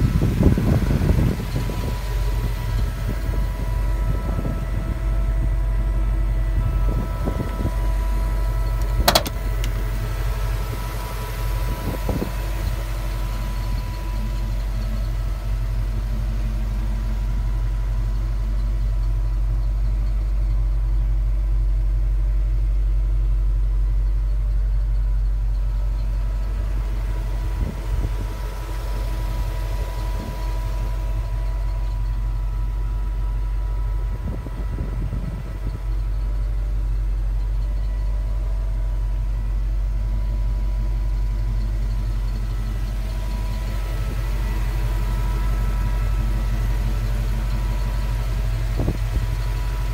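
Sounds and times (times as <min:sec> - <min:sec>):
truck engine droning: 0:00.0 - 0:49.9.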